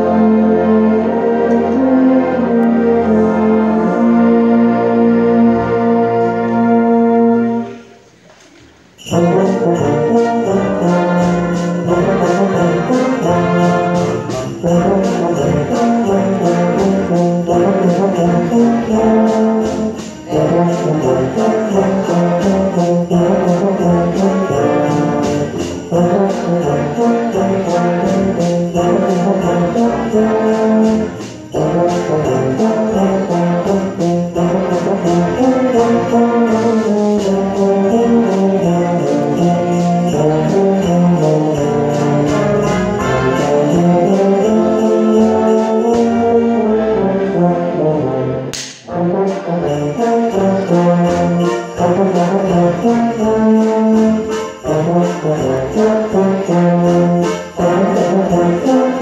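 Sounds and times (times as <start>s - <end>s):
tuba: 0.0s - 59.0s
jingle bells shaking: 8.8s - 46.8s, 49.0s - 59.0s
sharp click: 48.5s - 48.9s.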